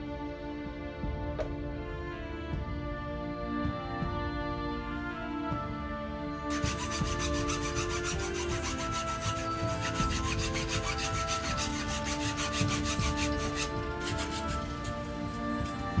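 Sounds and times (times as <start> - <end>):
metal file rasping on bamboo: 6.5 - 14.9.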